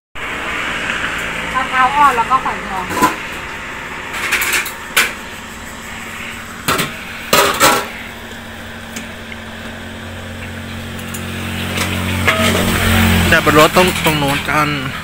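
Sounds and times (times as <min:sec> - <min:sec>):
metal scoop clanking on tubs: 0:02.8 - 0:05.3, 0:06.6 - 0:08.1, 0:11.0 - 0:15.0.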